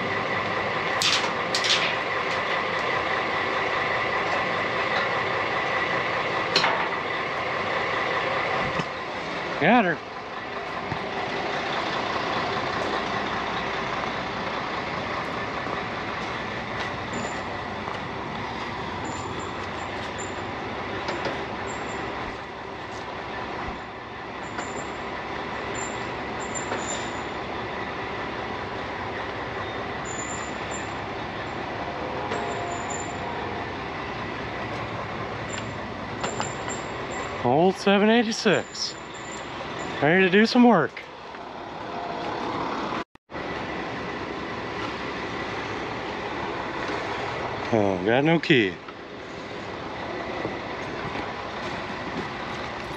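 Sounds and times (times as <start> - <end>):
truck engine running: 0.0 - 52.9.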